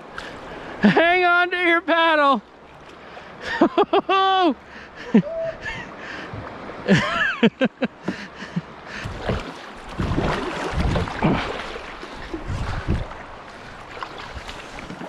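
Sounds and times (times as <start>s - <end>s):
water rushing and splashing: 0.0s - 15.0s
person yelling: 4.1s - 4.6s
wind buffeting microphone: 9.0s - 15.0s.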